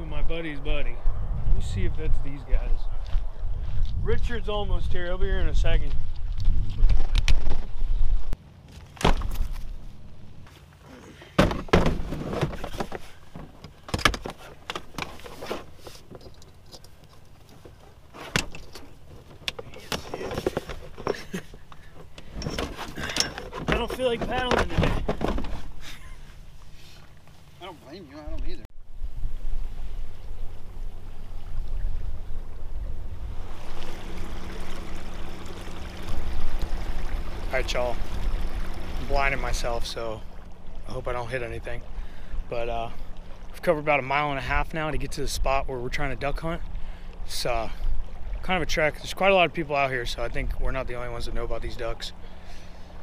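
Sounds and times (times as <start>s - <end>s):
wind buffeting microphone: 0.0s - 8.4s, 28.3s - 39.6s
boat moving through water: 9.3s - 53.0s
gear clunking in boat: 11.1s - 26.2s
light clicks and rattles: 12.5s - 25.7s
electric trolling motor humming: 30.2s - 39.1s.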